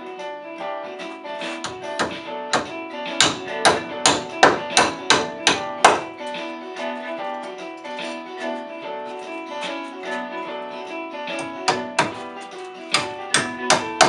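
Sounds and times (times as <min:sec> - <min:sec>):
guitar music: 0:00.0 - 0:14.0
hammer striking staples: 0:01.4 - 0:06.4, 0:11.3 - 0:14.0.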